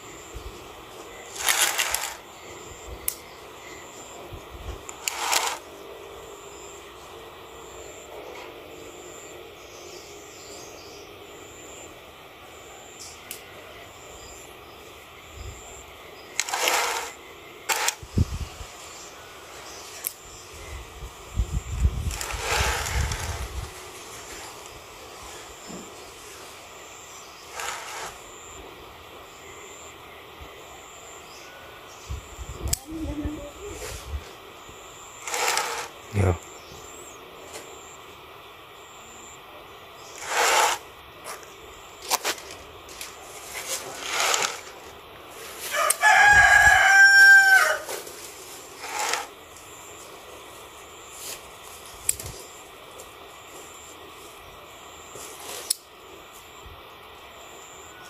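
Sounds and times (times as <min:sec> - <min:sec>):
outdoor background noise: 0:00.0 - 0:58.0
twigs and leaves rustling: 0:01.1 - 0:02.3, 0:04.8 - 0:05.7, 0:16.3 - 0:20.3, 0:21.8 - 0:26.6, 0:27.4 - 0:28.3, 0:40.0 - 0:53.1
rooster crowing: 0:45.6 - 0:48.0.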